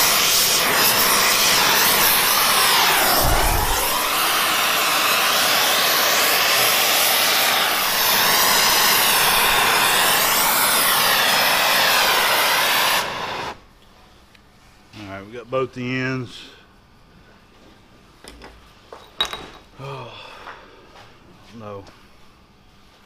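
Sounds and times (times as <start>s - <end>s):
torch flame hissing: 0.0s - 13.7s.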